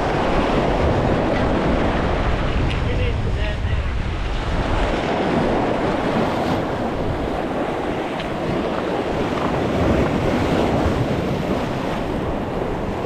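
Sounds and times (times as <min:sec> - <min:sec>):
waves splashing against rocks: 0:00.0 - 0:13.0
wind buffeting microphone: 0:00.0 - 0:13.0.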